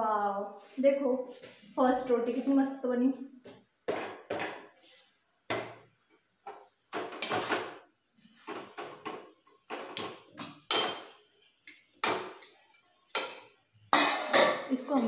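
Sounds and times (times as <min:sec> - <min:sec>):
metal spoon stirring in steel pan: 0:10.4 - 0:11.2, 0:12.0 - 0:15.0.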